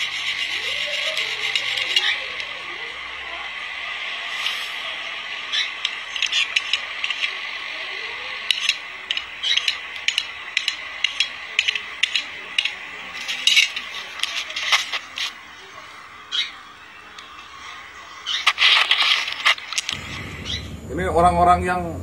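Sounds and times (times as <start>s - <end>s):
steady hiss: 0.0s - 22.0s
handling clicks taps and scrapes: 5.8s - 7.3s, 8.5s - 15.4s.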